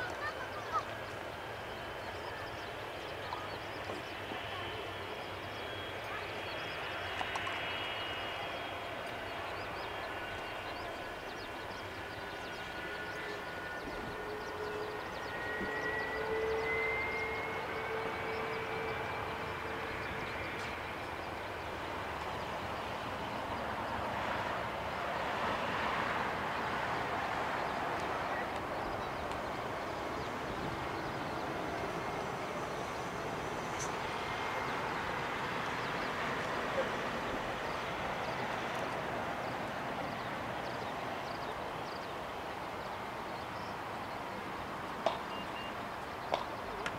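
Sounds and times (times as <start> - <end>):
jet engines whining: 0.0 - 46.9.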